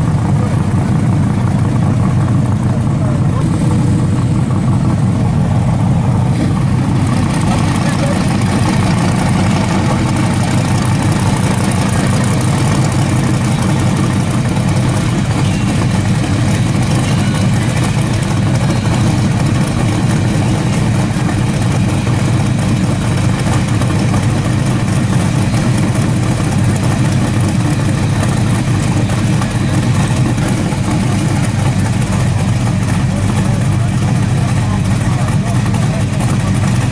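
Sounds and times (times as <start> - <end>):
car engine idling rumble: 0.0 - 36.9.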